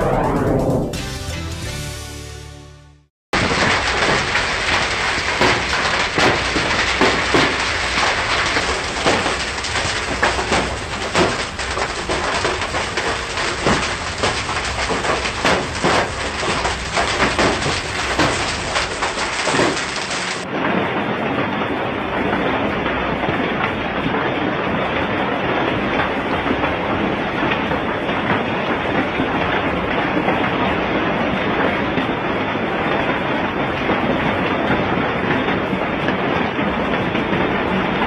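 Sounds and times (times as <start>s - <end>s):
heavy rain hissing: 3.4s - 20.4s
raindrops knocking: 3.4s - 20.5s.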